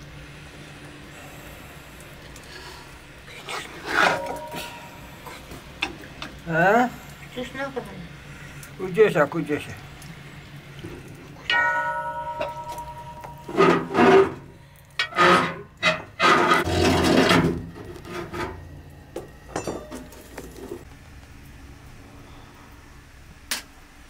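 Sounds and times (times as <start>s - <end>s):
ladle scraping: 3.4s - 6.4s, 10.9s - 18.6s
metal ladle clinking against pot: 4.0s - 6.4s.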